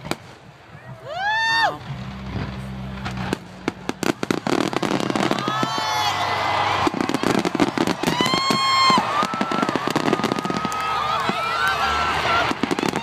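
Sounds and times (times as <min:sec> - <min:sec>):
fireworks bangs and crackling: 0:00.0 - 0:13.0
high falling cries: 0:00.9 - 0:01.9, 0:04.0 - 0:13.0.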